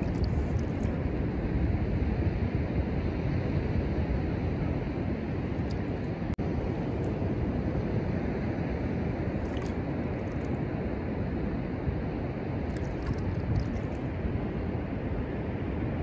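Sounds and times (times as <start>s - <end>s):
distant ocean surf: 0.0s - 16.0s
wind on microphone: 0.0s - 16.0s.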